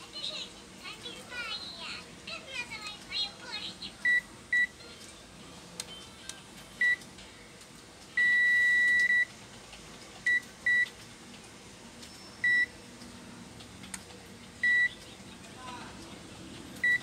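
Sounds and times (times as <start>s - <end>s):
multimeter continuity beeps: 4.0s - 4.8s, 8.2s - 9.3s, 12.4s - 12.7s, 14.6s - 15.0s.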